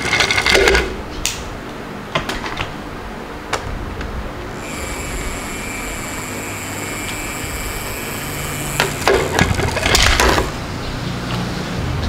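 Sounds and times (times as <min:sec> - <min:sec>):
toy truck wheels whining: 0:04.6 - 0:10.6.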